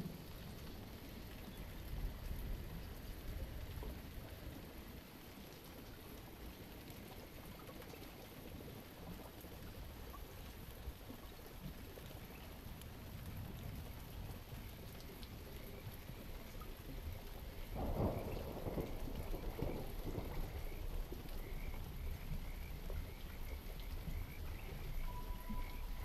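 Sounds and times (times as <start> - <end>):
raindrops ticking: 0.0 - 26.0
rain hissing: 12.2 - 26.0.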